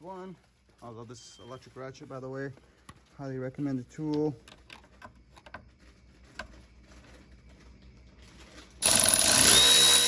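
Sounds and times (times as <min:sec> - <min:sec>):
electric ratchet motor whine: 0:08.8 - 0:10.0.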